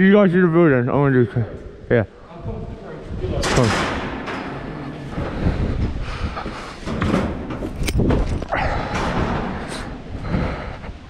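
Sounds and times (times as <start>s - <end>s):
clothing and camera rumble: 4.3s - 11.0s.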